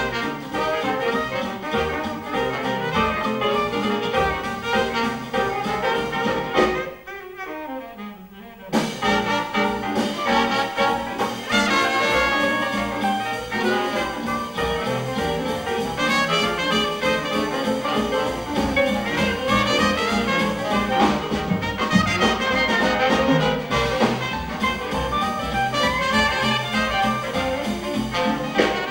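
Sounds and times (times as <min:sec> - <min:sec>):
jazz band playing live: 0:00.0 - 0:28.9.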